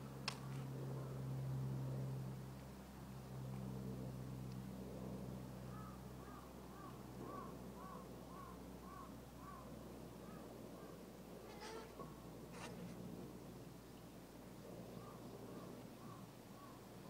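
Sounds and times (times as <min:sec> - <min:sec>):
crow cawing: 0:05.7 - 0:09.6, 0:15.0 - 0:16.8.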